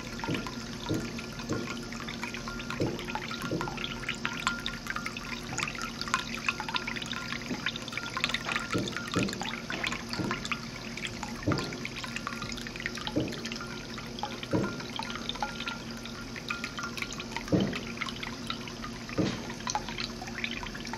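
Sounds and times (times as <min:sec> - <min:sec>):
low steady hum: 0:00.0 - 0:20.9
water drips and plops: 0:00.0 - 0:20.9
water trickling into a bowl: 0:00.0 - 0:20.9.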